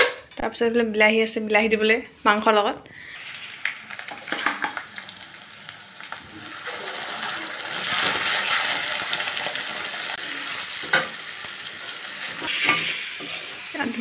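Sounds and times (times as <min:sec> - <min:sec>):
meat sizzling in hot oil: 0:03.0 - 0:14.0.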